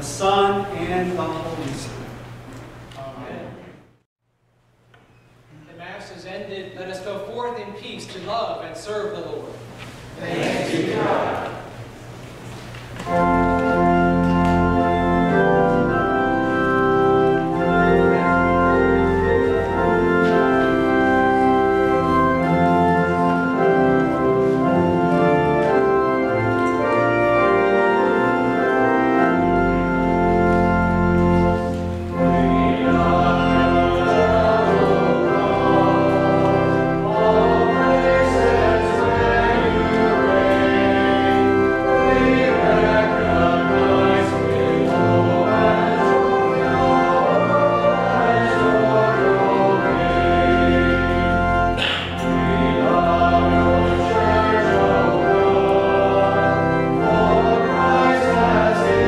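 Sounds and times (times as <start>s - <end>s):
church organ chords: 0.0s - 3.6s, 10.4s - 59.0s
voices singing: 10.2s - 11.8s, 32.2s - 59.0s.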